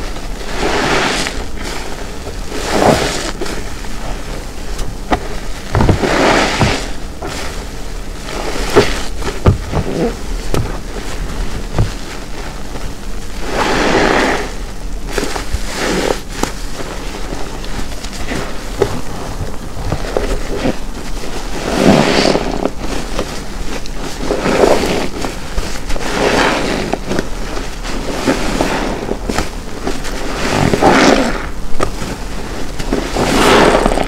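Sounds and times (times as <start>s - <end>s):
small crackles: 0.0s - 34.0s
wet sponge squeezing: 0.0s - 34.0s.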